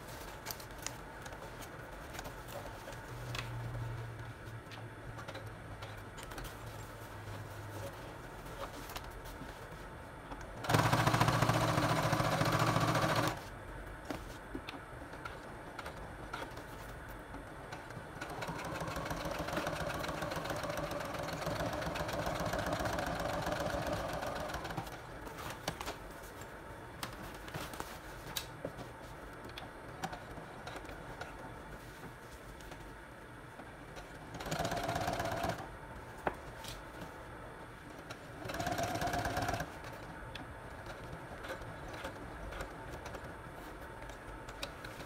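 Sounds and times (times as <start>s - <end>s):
sewing machine stitching: 10.6s - 13.4s, 18.2s - 24.9s, 34.4s - 35.6s, 38.4s - 39.7s.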